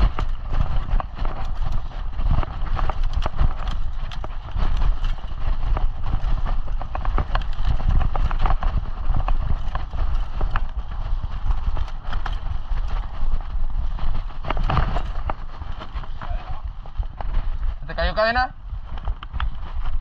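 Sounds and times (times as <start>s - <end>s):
bike rattling and knocking: 0.0s - 20.0s
tyres rolling on dirt: 0.0s - 20.0s
wind rumble on microphone: 0.0s - 20.0s.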